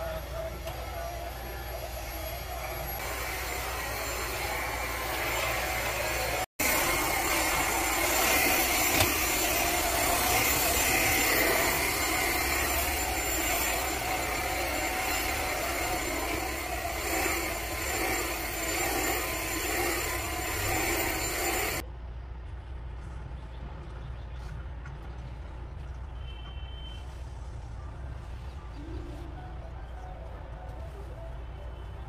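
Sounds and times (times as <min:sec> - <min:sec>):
stick vacuum cleaner running: 0:00.0 - 0:21.8.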